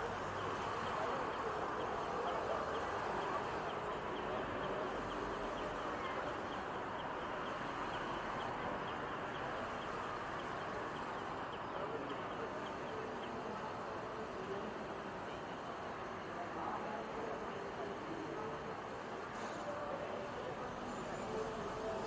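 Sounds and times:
cars passing: 0.0 - 15.2
bus humming: 0.0 - 22.0.

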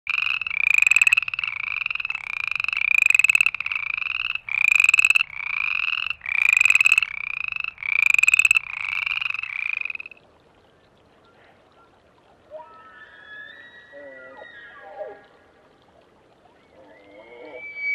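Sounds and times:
frogs trilling: 0.1 - 10.2.

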